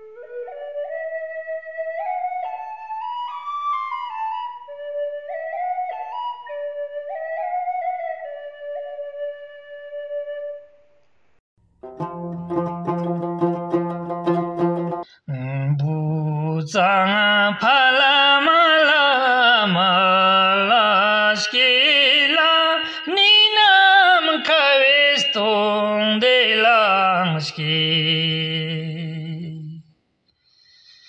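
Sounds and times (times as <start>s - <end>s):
man singing unaccompanied: 15.3s - 29.9s.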